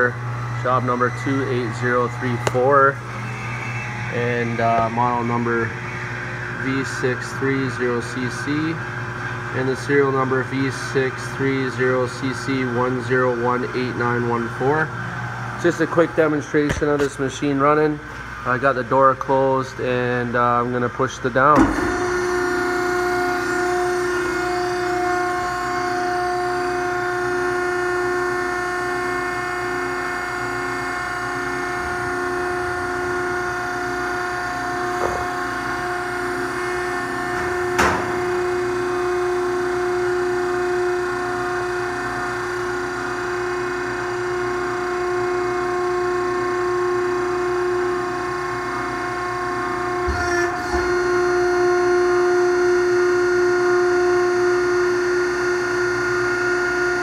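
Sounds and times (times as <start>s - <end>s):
baler motor whining: 0.0s - 10.2s, 21.6s - 57.0s.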